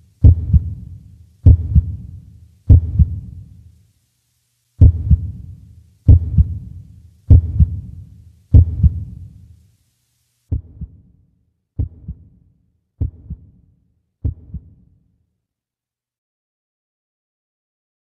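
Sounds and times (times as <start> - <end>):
heartbeat thumps: 0.2 - 3.4, 4.8 - 9.3, 10.5 - 11.1, 11.8 - 12.4, 13.0 - 13.6, 14.2 - 14.8.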